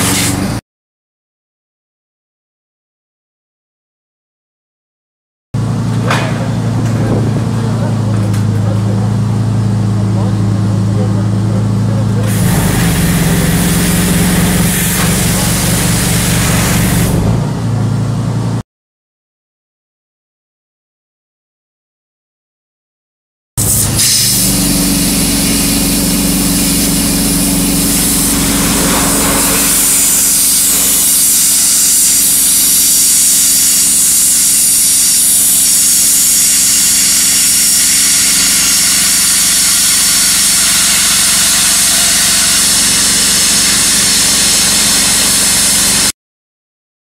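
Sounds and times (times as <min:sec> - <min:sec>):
pump engine humming: 0:05.6 - 0:17.5, 0:23.6 - 0:46.1
water jet hissing: 0:12.2 - 0:17.3, 0:23.6 - 0:46.1.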